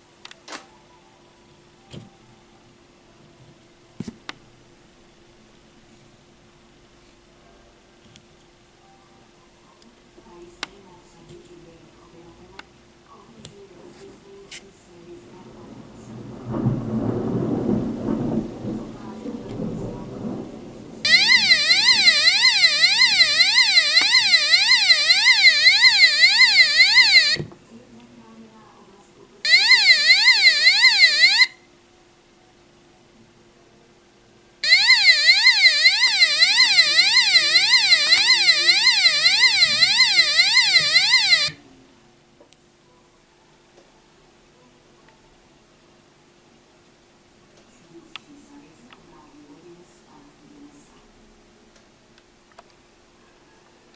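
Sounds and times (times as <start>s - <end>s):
low rustling rumble: 15.1s - 21.1s
electronic buzzer siren: 21.0s - 27.5s, 29.5s - 31.6s, 34.6s - 41.6s.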